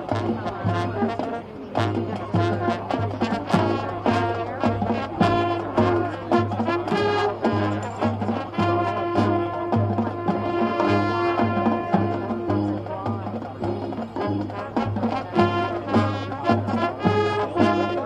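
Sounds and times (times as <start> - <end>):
marching band brass playing: 0.0 - 18.0.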